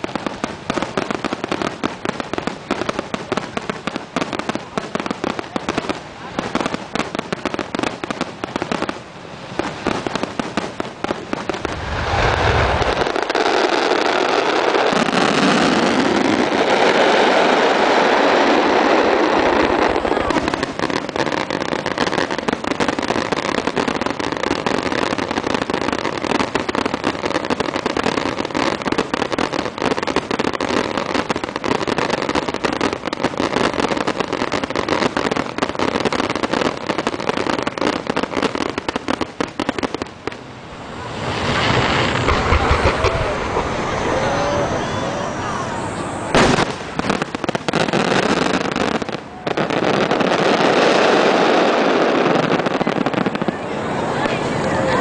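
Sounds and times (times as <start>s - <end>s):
fireworks bursting and crackling: 0.0s - 55.0s
heavy low boom: 42.2s - 44.8s.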